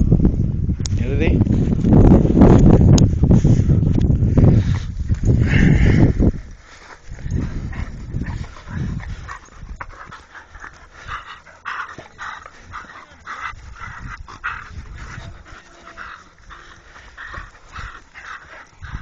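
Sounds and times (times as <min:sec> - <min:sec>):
dog breathy sounds: 0:03.2 - 0:19.0
dogs playing: 0:06.2 - 0:19.0.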